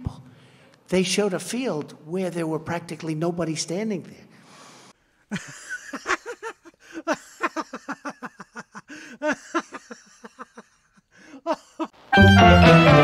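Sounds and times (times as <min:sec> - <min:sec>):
person laughing heartily: 0:05.3 - 0:12.0.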